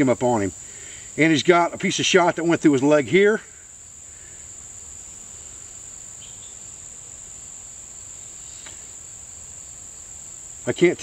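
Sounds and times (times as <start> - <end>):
insects trilling: 0.0 - 11.0
faint soft clicks: 8.6 - 8.8.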